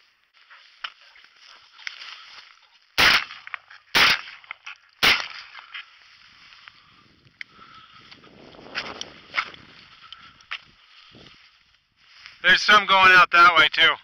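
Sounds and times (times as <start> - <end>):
shotgun shots: 3.0 - 4.4, 5.0 - 5.6.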